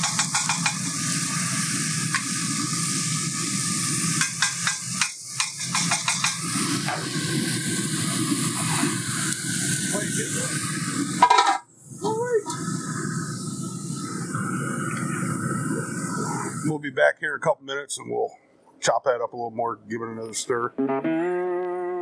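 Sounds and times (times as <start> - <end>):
sausage sizzling in a pan: 0.0 - 16.6
spatula scraping and tapping pan: 4.2 - 6.4.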